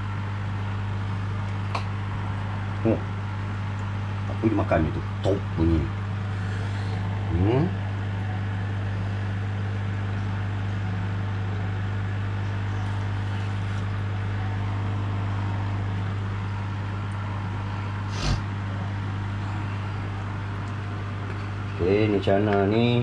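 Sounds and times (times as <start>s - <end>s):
filter pump humming: 0.0s - 23.0s
water hissing: 18.1s - 18.4s.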